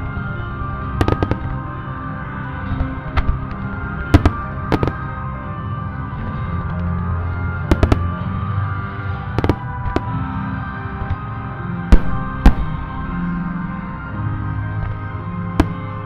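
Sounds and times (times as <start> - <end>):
music with sustained tones: 0.0 - 16.0.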